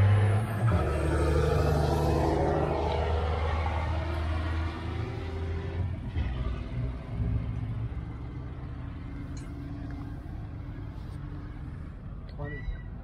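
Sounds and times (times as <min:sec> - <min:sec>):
diesel truck engine rumble: 0:00.0 - 0:13.0.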